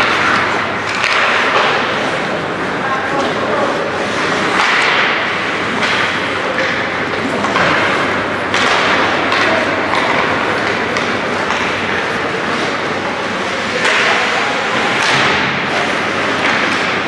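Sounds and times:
puck and stick cracks: 0:00.0 - 0:02.4, 0:04.0 - 0:17.0
crowd and skating noise: 0:00.0 - 0:17.0.

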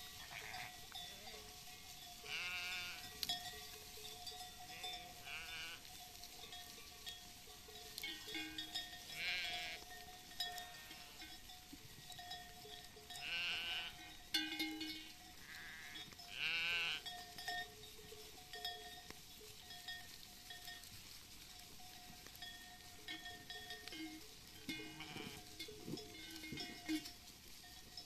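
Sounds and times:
sheep bells clinking: 0:00.0 - 0:28.0
sheep bleating: 0:00.2 - 0:01.5, 0:02.2 - 0:03.1, 0:04.7 - 0:05.9, 0:09.1 - 0:09.9, 0:10.5 - 0:11.3, 0:13.2 - 0:14.2, 0:15.0 - 0:17.1, 0:24.7 - 0:25.6.

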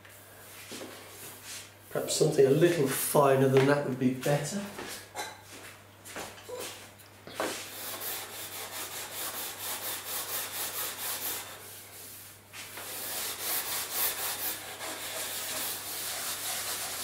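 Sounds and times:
sanding block rubbing wood: 0:07.6 - 0:17.0.

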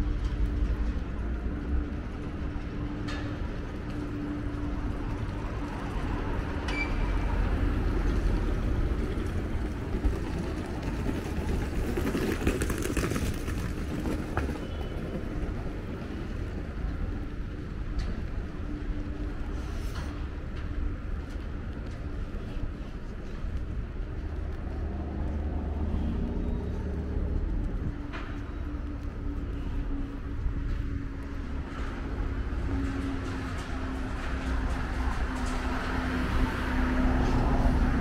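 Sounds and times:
traffic rumble: 0:00.0 - 0:38.0.

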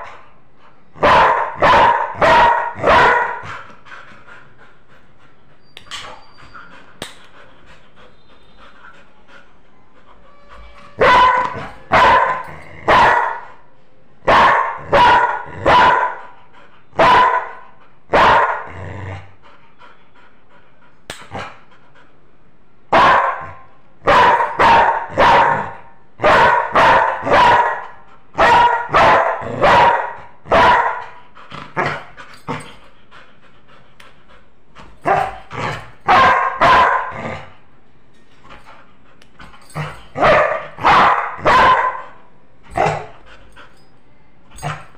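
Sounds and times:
dog barking loudly: 0:01.0 - 0:03.5, 0:11.0 - 0:13.5, 0:14.2 - 0:16.2, 0:17.0 - 0:18.7, 0:22.9 - 0:31.2, 0:35.0 - 0:37.3, 0:40.2 - 0:43.1.

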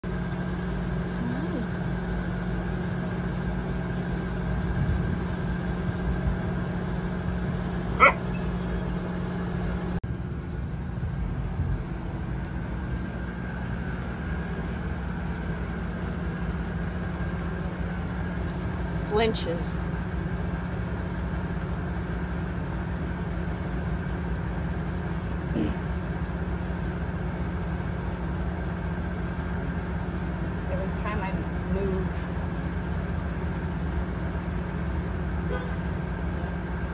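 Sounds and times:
low mechanical hum: 0:00.0 - 0:36.9
steady low rumble: 0:00.5 - 0:21.0.

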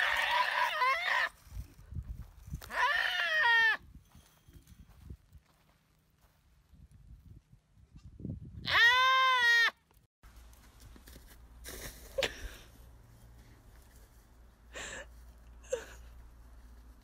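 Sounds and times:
goat bleating: 0:02.7 - 0:03.8.

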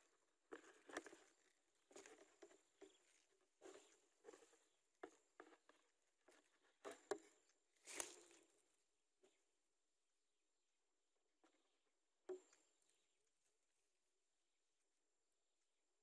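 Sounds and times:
dry grass rustling: 0:07.7 - 0:08.5.

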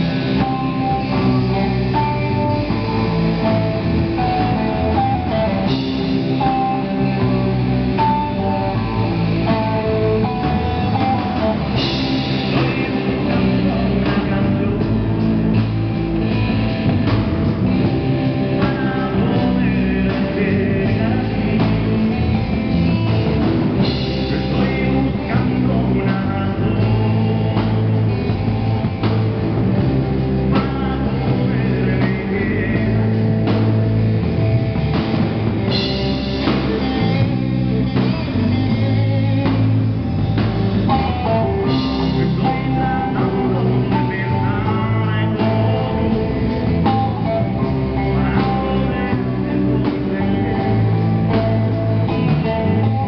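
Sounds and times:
distorted electric guitars: 0:00.0 - 0:53.0
drum kit: 0:00.0 - 0:53.0
electric bass: 0:00.0 - 0:53.0
person singing through a pa: 0:18.4 - 0:22.2, 0:23.8 - 0:27.9, 0:30.5 - 0:33.4, 0:40.9 - 0:53.0.

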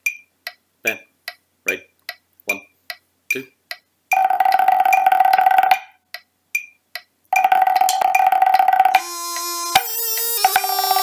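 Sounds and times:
drumsticks rolling on practice pad: 0:07.4 - 0:09.0.

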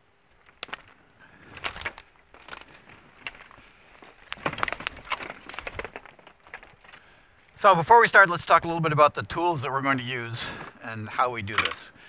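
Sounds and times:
twigs snapping underfoot: 0:00.3 - 0:07.6
footsteps crunching dry leaves: 0:00.4 - 0:07.0.

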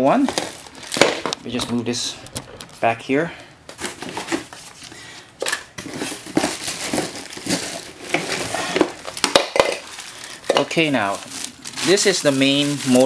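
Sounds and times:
plastic wrap crinkling: 0:00.1 - 0:03.0, 0:05.8 - 0:13.0.

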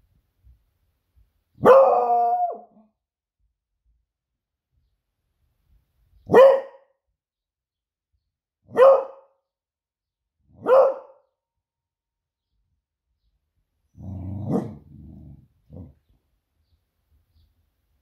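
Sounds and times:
dog barking: 0:01.6 - 0:02.8, 0:06.3 - 0:07.0, 0:08.7 - 0:09.4, 0:10.5 - 0:11.4, 0:14.4 - 0:14.9.

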